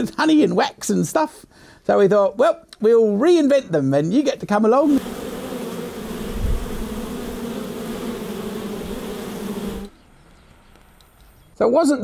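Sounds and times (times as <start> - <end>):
honey bees buzzing: 4.8 - 10.0.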